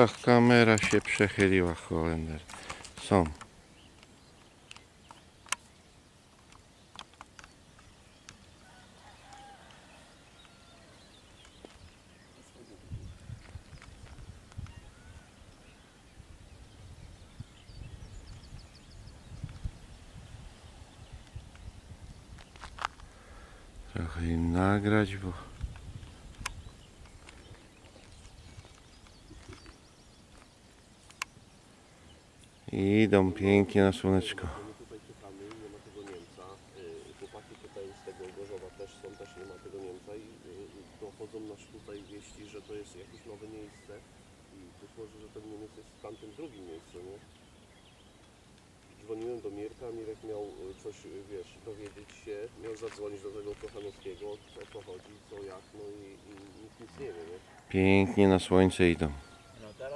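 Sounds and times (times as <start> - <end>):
sharp clicks: 2.4 - 8.5, 25.6 - 27.6.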